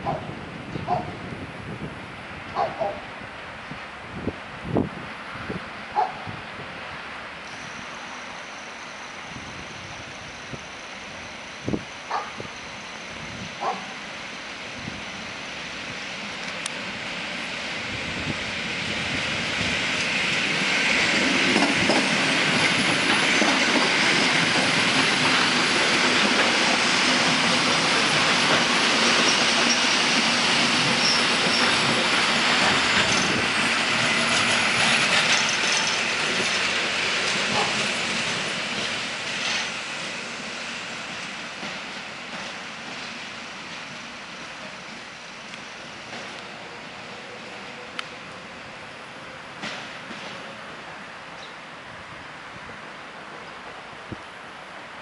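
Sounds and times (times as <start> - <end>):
electric train passing: 0.0 - 55.0
wheels clacking over rail joints: 20.0 - 39.8, 49.5 - 50.5.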